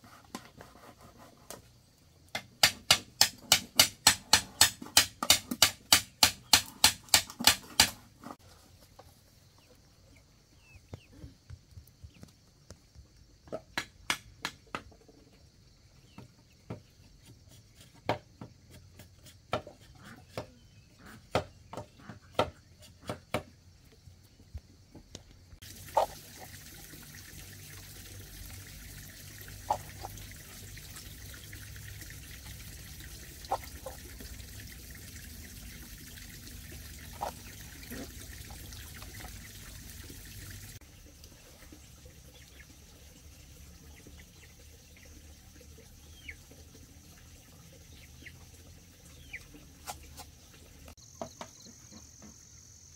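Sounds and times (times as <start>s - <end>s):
machete chopping wood: 2.3s - 8.0s.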